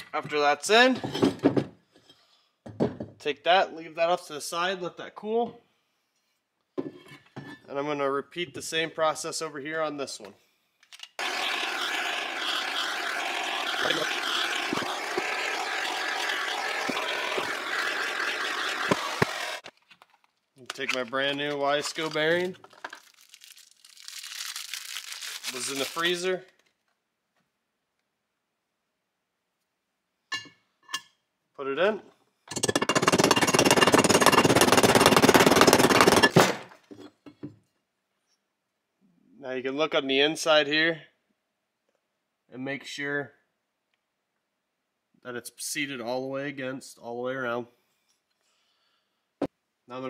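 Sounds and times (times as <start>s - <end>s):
gas torch hissing: 11.2s - 19.6s.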